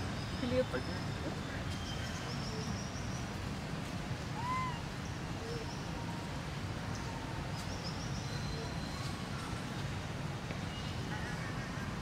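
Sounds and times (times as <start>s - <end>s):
rising and falling bird call: 4.4s - 5.8s
faint bird chirps: 6.9s - 9.6s.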